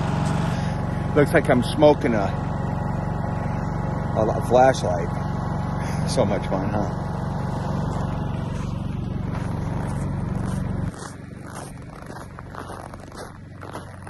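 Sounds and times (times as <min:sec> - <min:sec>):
generator engine humming: 0:00.0 - 0:14.0
footsteps crunching in snow: 0:07.6 - 0:14.0.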